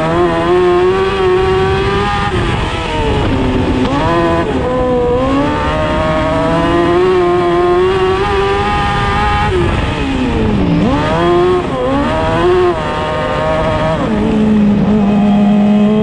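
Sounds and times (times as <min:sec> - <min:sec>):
race car engine revving: 0:00.0 - 0:16.0.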